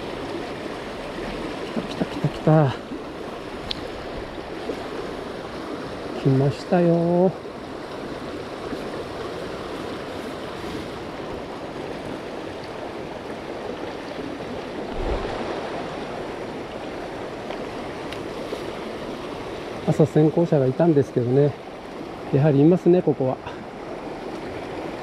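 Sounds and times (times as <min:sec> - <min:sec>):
river rushing over rocks: 0:11.0 - 0:20.6
low rumble: 0:14.9 - 0:16.2.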